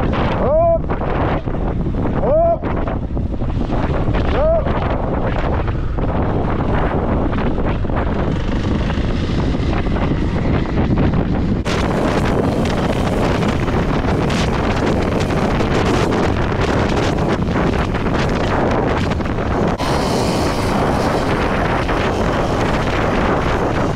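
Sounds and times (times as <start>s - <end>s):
wind buffeting microphone: 0.0s - 23.9s
motorcycle engine running: 5.8s - 23.9s.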